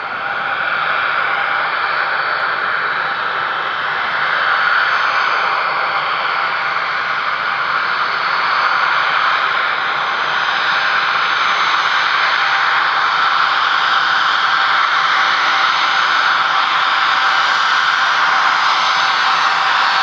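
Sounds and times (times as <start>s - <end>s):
jet engines at taxi power: 0.0s - 20.0s.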